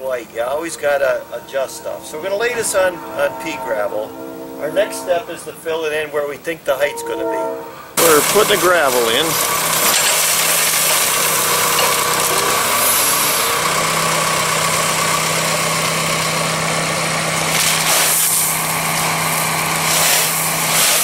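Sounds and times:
tractor engine idling: 8.0 - 20.7.

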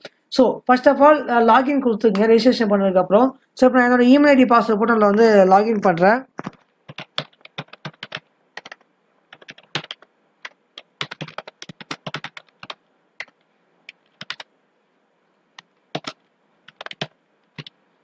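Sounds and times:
typing on computer keyboard: 6.4 - 14.5, 15.6 - 17.8.

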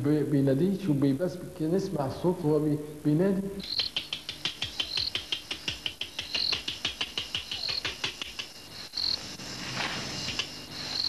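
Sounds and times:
bat squeaking: 3.6 - 5.4
man making clicking mouth sounds: 3.6 - 8.7.

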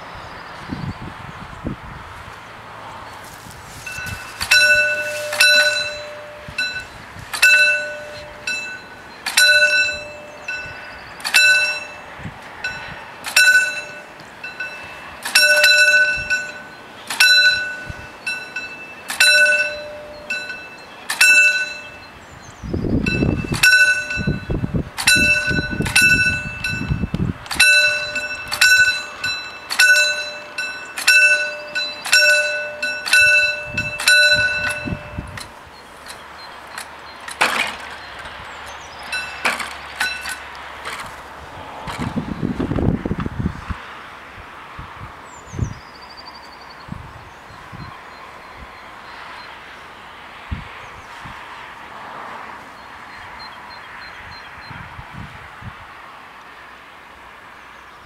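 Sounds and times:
level crossing bell: 3.9 - 22.2, 23.1 - 35.6, 39.1 - 40.5.

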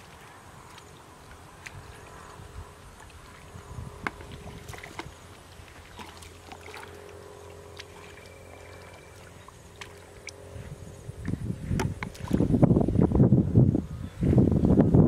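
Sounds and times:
low hum: 0.0 - 15.0
hands splashing in muddy water: 3.2 - 10.5.

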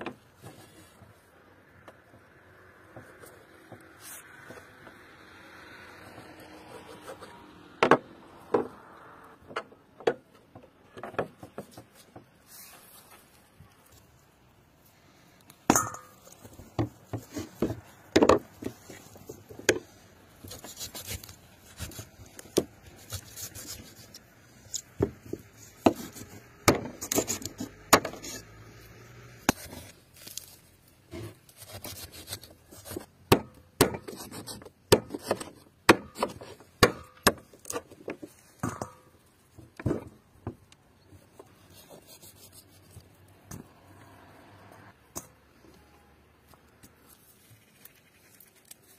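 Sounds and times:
knife cutting through skin: 31.5 - 33.0.

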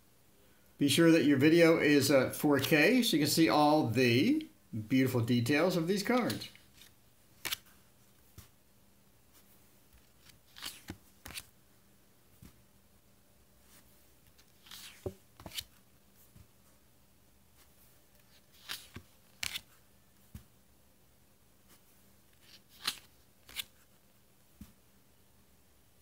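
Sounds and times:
cards swishing over cards: 6.1 - 8.6, 9.4 - 11.5, 13.6 - 16.7, 17.6 - 20.5, 21.7 - 23.9.

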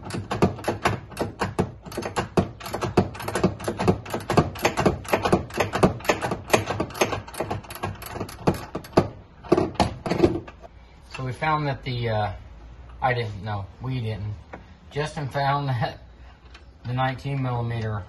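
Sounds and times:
ratchet wrench clicking: 0.0 - 9.0.

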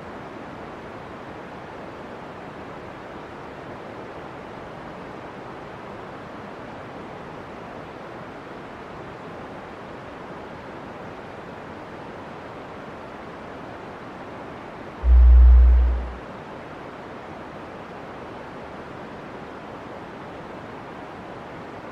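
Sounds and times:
steady rushing noise: 15.0 - 16.3.

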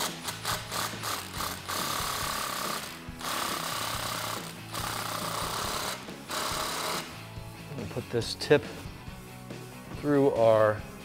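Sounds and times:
impact wrench hammering: 0.0 - 7.2.

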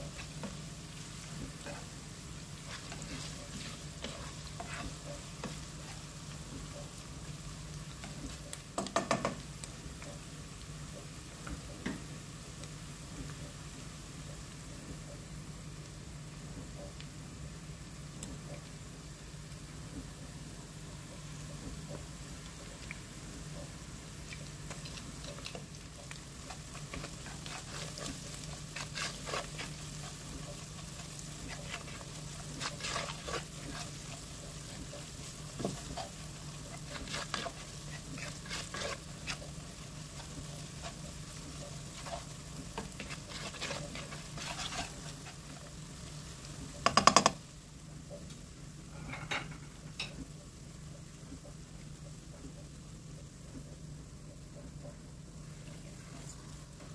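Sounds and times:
meat sizzling in oil: 0.0 - 14.8, 15.5 - 56.9
plastic spatula scraping pot: 24.7 - 45.6.

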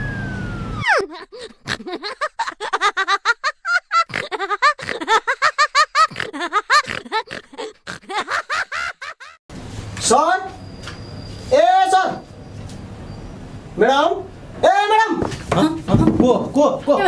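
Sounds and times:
comic squeaky chattering voice: 0.8 - 1.1.

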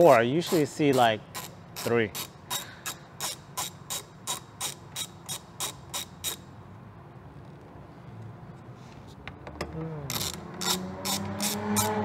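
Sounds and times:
ratchet wrench clicking: 0.0 - 6.5, 10.1 - 12.0.

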